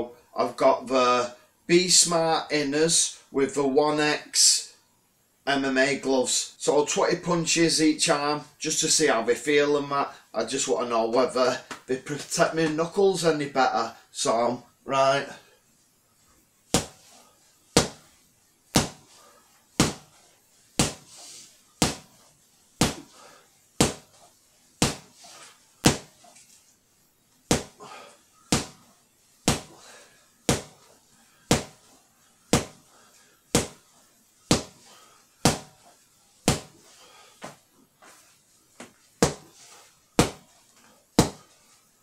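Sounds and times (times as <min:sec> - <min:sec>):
gloved punches slapping a punch bag: 0:16.7 - 0:17.0, 0:17.8 - 0:18.1, 0:18.7 - 0:19.1, 0:19.8 - 0:20.1, 0:20.8 - 0:21.1, 0:21.8 - 0:22.1, 0:22.8 - 0:23.1, 0:23.8 - 0:24.2, 0:24.8 - 0:25.2, 0:25.8 - 0:26.2, 0:27.5 - 0:27.8, 0:28.5 - 0:28.8, 0:29.4 - 0:29.8, 0:30.5 - 0:30.9, 0:31.5 - 0:31.8, 0:32.5 - 0:32.9, 0:33.5 - 0:33.8, 0:34.5 - 0:34.8, 0:35.4 - 0:35.8, 0:36.5 - 0:36.8, 0:39.2 - 0:39.5, 0:40.2 - 0:40.5, 0:41.2 - 0:41.5.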